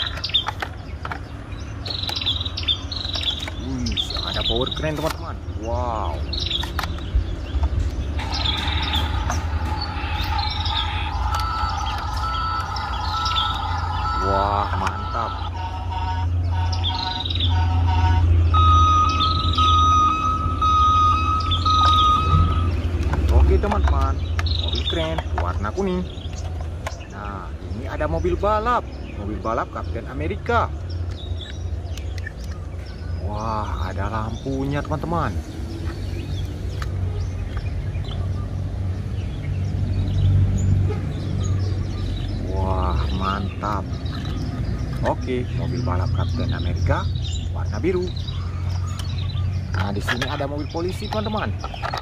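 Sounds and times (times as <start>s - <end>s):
birds chirping: 0.0s - 52.0s
long high electronic tone: 10.0s - 22.8s
quick paired beeps: 10.2s - 16.2s, 18.0s - 22.8s.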